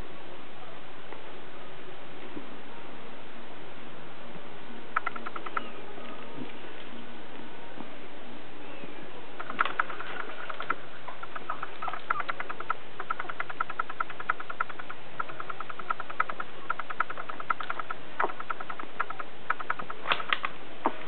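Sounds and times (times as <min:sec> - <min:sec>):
puppies making quick clicks: 0:05.0 - 0:05.7, 0:09.4 - 0:20.6.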